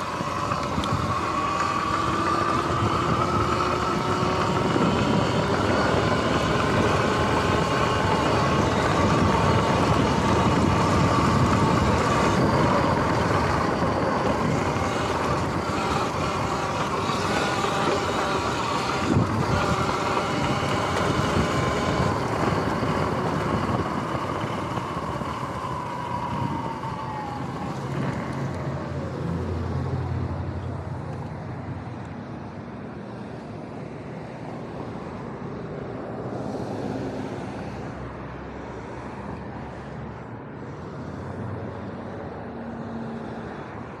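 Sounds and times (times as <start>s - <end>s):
tyre and wind noise: 0.0s - 29.3s
electric motor whine: 0.0s - 30.5s
passing road traffic: 0.0s - 44.0s.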